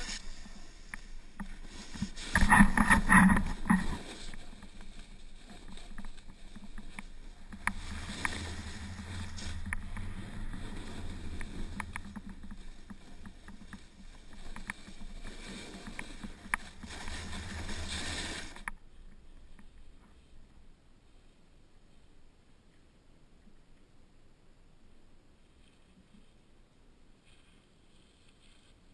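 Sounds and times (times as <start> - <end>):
skis scraping over crusted snow: 0.0 - 20.4
wind rumbling on microphone: 0.0 - 20.8.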